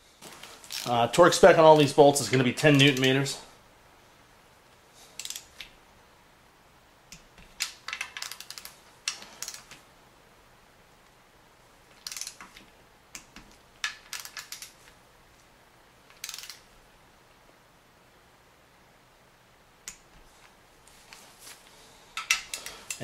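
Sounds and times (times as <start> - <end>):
torque wrench ratchet clicking: 5.2 - 5.5, 12.0 - 12.4, 16.2 - 16.6.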